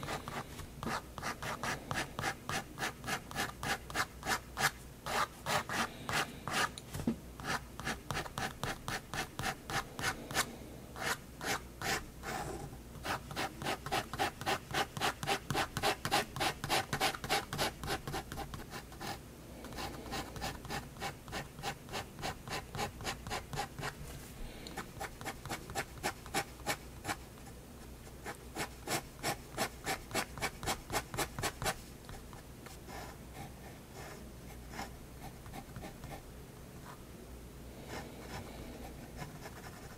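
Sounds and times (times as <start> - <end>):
pen scratching on paper: 0.0 - 6.7, 7.4 - 10.4, 11.0 - 24.0.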